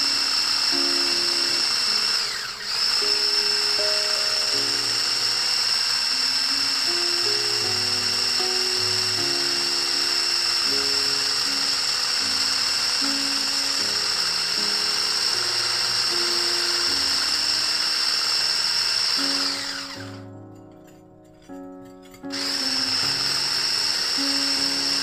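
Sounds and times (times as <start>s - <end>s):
background music: 0.0s - 25.0s
electric hand whisk whining: 0.0s - 25.0s.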